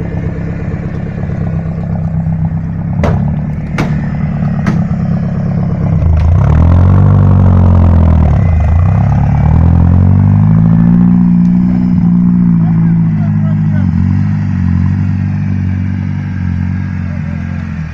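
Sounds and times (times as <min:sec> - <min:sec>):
off-road vehicle engine revving: 0:00.0 - 0:17.9
sharp cracks: 0:03.0 - 0:05.0.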